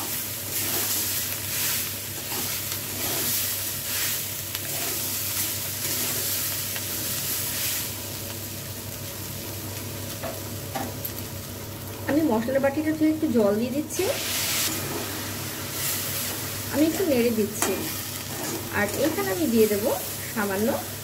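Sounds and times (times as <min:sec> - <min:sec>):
frying sizzle: 0:00.0 - 0:21.0
spatula scraping metal pan: 0:17.6 - 0:19.1.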